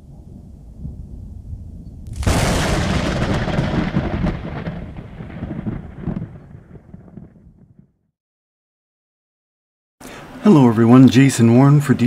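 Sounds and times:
thunder crack and rumble: 0:00.0 - 0:08.0.

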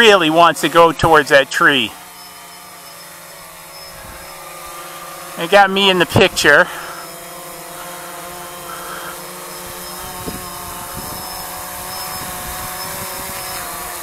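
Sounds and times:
drone propellers whirring: 0:00.0 - 0:14.0.

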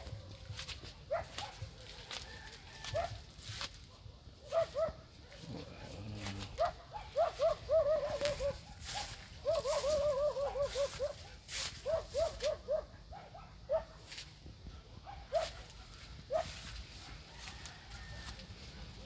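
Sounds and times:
dog yipping: 0:04.4 - 0:05.0, 0:06.6 - 0:14.0.

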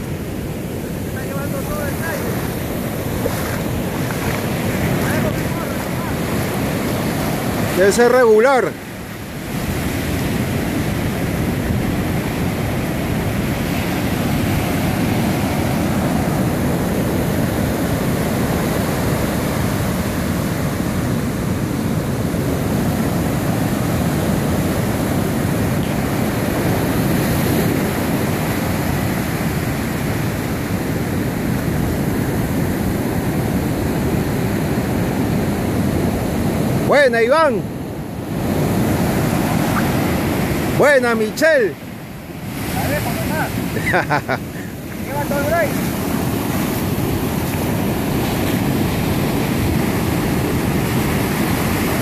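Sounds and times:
wind rumbling on microphone: 0:00.0 - 0:41.0
ocean surf breaking: 0:00.0 - 0:52.0.

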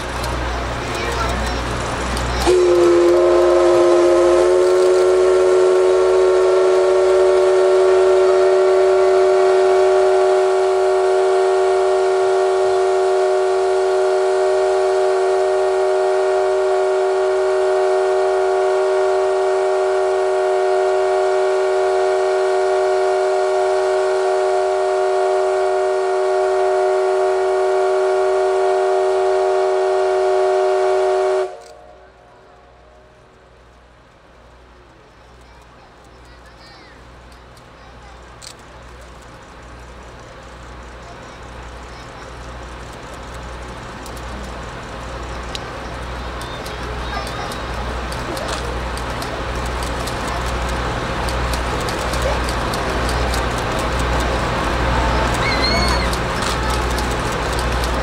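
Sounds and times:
steam locomotive whistle: 0:02.4 - 0:32.1, 0:53.9 - 0:57.2.

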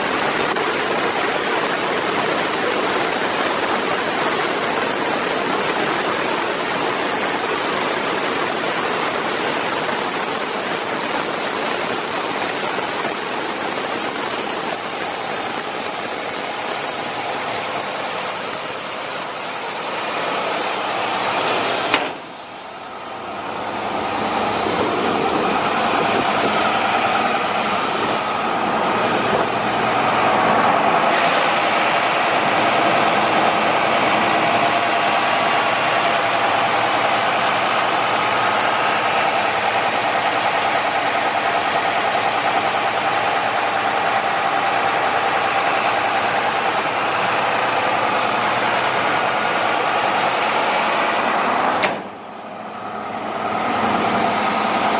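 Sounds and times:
air compressor running: 0:00.0 - 0:54.9
sharp click: 0:21.9 - 0:22.3, 0:51.8 - 0:52.2.

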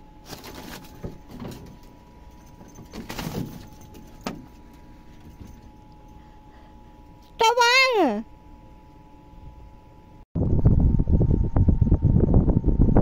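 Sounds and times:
faint steady hum: 0:00.0 - 0:13.0
dog moving on slat floor: 0:02.5 - 0:05.6.

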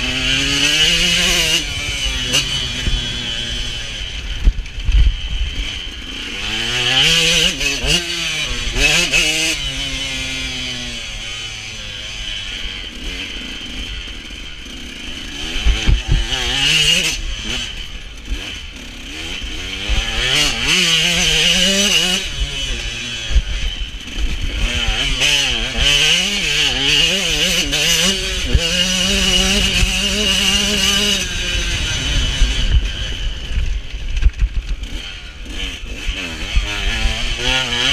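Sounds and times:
motocross engine revving: 0:00.0 - 0:37.9
wind rumble on microphone: 0:00.9 - 0:05.8, 0:27.3 - 0:35.6.

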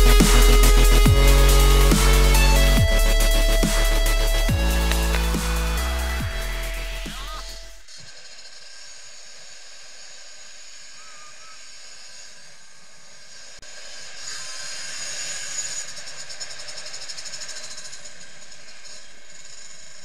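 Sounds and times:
electronic music: 0:00.0 - 0:08.0.

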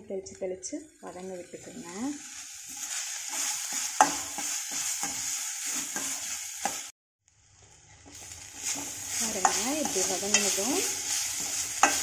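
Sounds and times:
food sizzling in a pan: 0:00.3 - 0:12.0
spatula scraping and knocking pan: 0:02.7 - 0:06.9, 0:08.0 - 0:12.0.

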